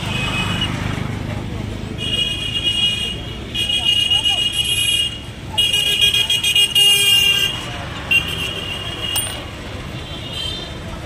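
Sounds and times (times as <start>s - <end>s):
street traffic noise: 0.0s - 11.0s
vehicle horns honking: 2.0s - 10.8s.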